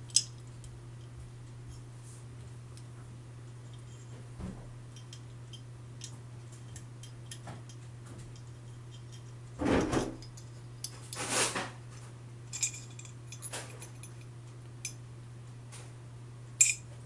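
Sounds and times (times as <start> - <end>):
steady low hum: 0.0 - 17.0
sharp metallic clinks: 16.6 - 16.8.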